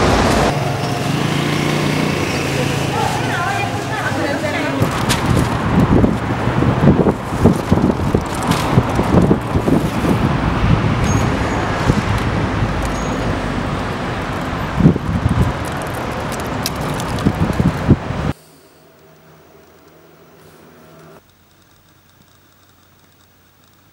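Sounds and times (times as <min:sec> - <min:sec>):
cars and buses passing: 0:00.0 - 0:21.2
wind buffeting microphone: 0:04.0 - 0:18.4.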